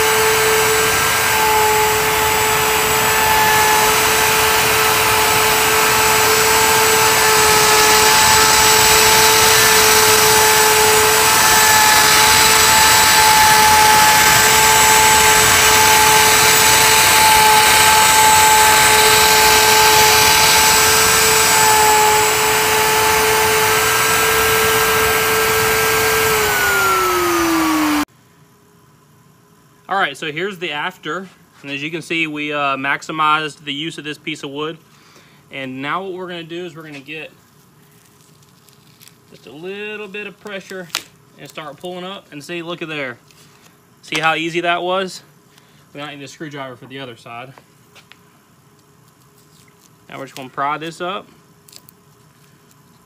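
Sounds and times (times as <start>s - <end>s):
bit carving wood: 0.0s - 28.1s
router spindle whining: 0.0s - 28.1s.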